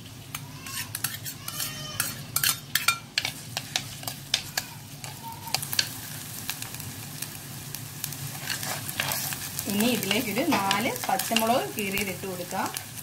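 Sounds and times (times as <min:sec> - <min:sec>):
food sizzling in oil: 0:00.0 - 0:13.0
metal spoon scraping a pot: 0:00.6 - 0:04.4, 0:08.4 - 0:09.4.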